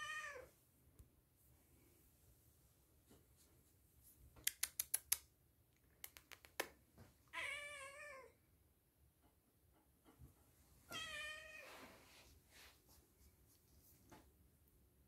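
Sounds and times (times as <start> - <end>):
cat meowing: 0.0 - 0.5, 7.3 - 8.4, 10.9 - 11.7.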